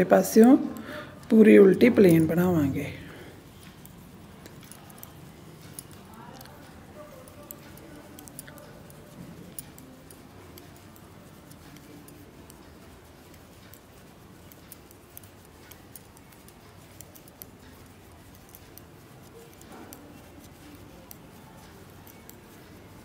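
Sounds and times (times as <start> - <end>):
knitting needles clicking: 0.0 - 23.0
low background hum: 0.0 - 23.0.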